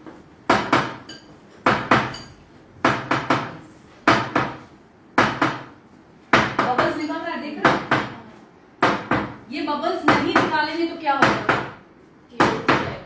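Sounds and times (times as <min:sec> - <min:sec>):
kitchenware knocking on dishes: 0:00.5 - 0:03.5.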